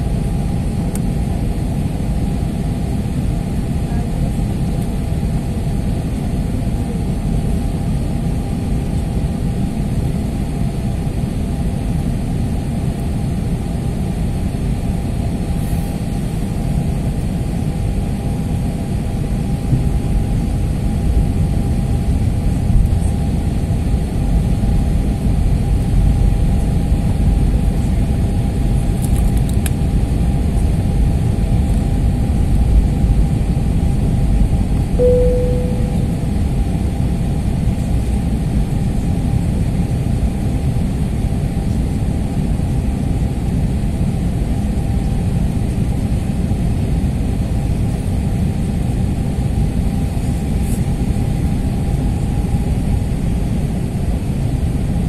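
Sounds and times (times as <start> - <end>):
steady hum tone: 35.0 - 39.1.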